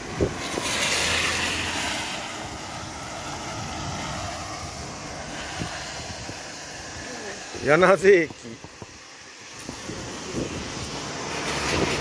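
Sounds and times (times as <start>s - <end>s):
low engine hum: 0.0s - 12.0s
tyre hiss on wet road: 0.0s - 12.0s.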